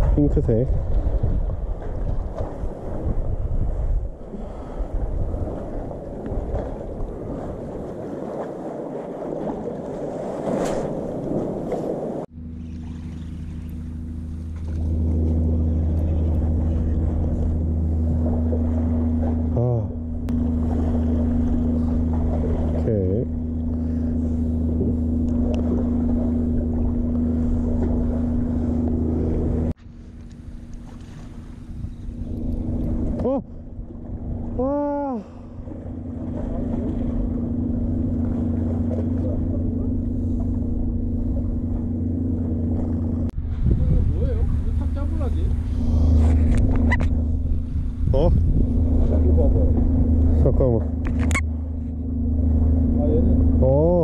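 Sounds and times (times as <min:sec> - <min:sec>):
low machine hum: 0:00.0 - 0:10.4, 0:11.0 - 0:54.0
wind buffeting microphone: 0:00.0 - 0:12.3, 0:30.5 - 0:54.0
sea water washing: 0:00.0 - 0:54.0.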